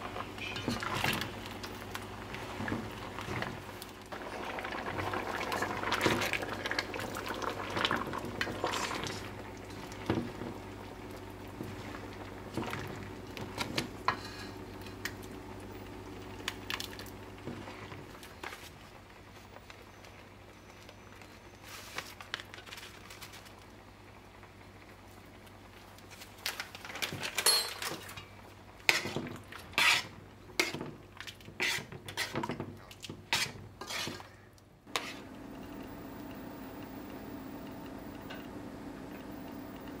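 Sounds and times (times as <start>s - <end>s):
food simmering in a pot: 0.0s - 22.5s, 23.1s - 40.0s
spatula stirring and sloshing: 0.4s - 15.3s, 27.8s - 35.3s
spatula scraping a metal pot: 28.9s - 30.8s, 31.6s - 32.4s, 33.3s - 34.3s, 34.9s - 35.2s.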